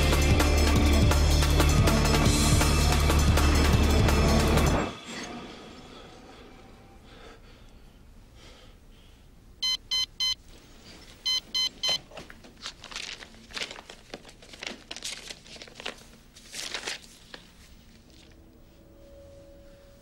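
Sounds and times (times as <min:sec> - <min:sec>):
alarm clock beeping: 0:09.6 - 0:10.4, 0:11.2 - 0:12.0
notebook pages rustling: 0:11.9 - 0:18.4.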